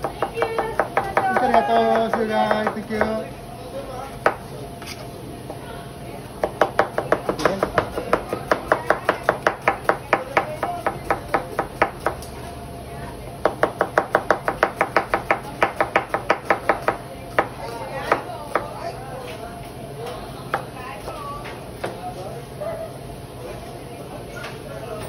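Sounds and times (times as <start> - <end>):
knife chopping on cutting board: 6.4 - 12.2.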